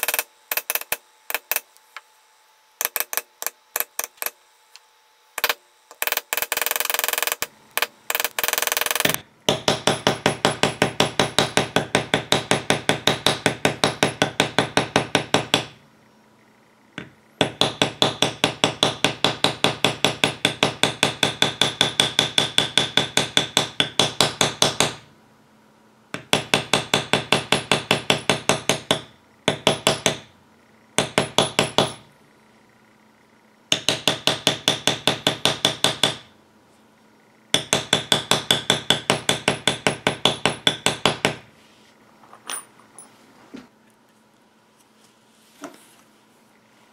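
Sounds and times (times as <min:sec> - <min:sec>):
mallet tapping metal stamping tool: 0:05.4 - 0:15.8, 0:17.0 - 0:25.0, 0:26.1 - 0:30.3, 0:31.0 - 0:32.0, 0:33.7 - 0:36.3, 0:37.5 - 0:41.4.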